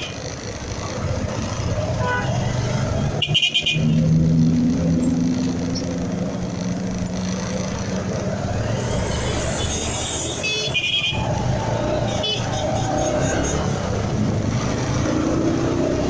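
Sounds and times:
road traffic engines running: 0.0 - 16.0
steady engine hum: 0.0 - 16.0.

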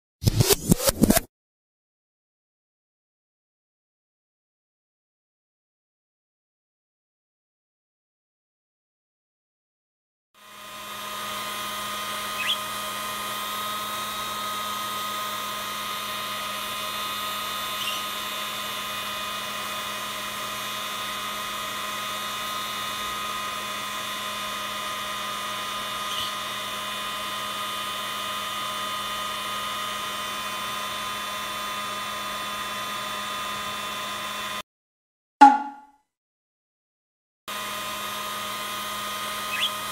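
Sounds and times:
hair dryer humming: 10.4 - 34.6, 37.5 - 39.9
budgerigar chirps: 12.4 - 12.6, 17.8 - 18.0, 39.5 - 39.8.

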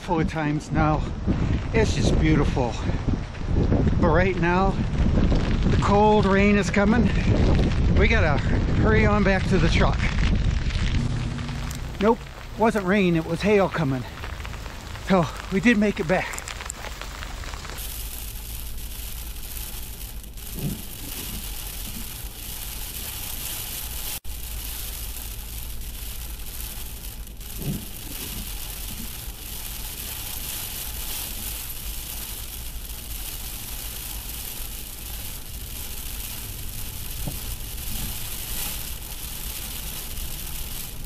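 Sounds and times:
raindrops on windshield: 3.0 - 41.0
road noise inside truck: 10.5 - 15.5, 16.4 - 41.0.

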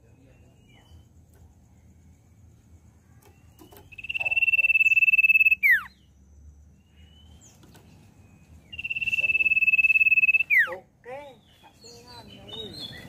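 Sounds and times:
bird trilled whistle: 3.6 - 6.1, 8.6 - 10.8.

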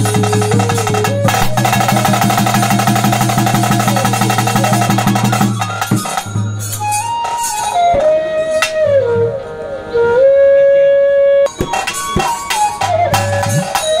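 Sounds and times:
fast drumming: 0.0 - 6.5, 11.5 - 14.0
drum strokes: 0.0 - 8.9, 11.5 - 14.0
wind instrument melody: 0.0 - 14.0.

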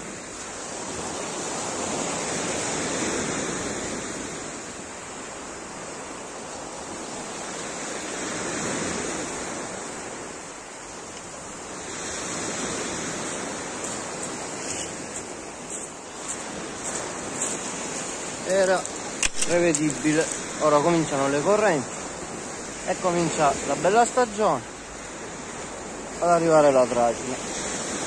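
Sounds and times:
sea waves on pebble beach: 0.0 - 28.0
footsteps crunching on pebbles: 13.7 - 20.6.

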